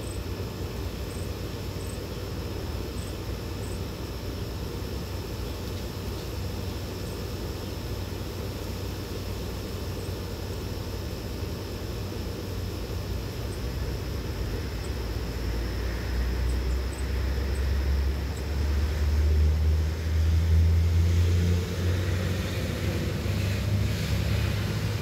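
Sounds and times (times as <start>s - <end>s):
passing vehicle engine rumble: 13.8s - 25.0s.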